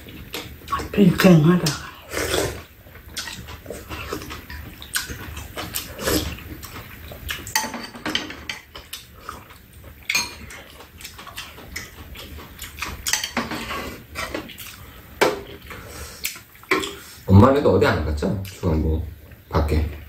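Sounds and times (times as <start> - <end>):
chewing: 1.7 - 7.6, 8.7 - 17.1
slurping soup: 1.9 - 4.4
spoons and chopsticks clinking on bowls: 7.4 - 9.0, 10.0 - 12.0, 13.0 - 14.5.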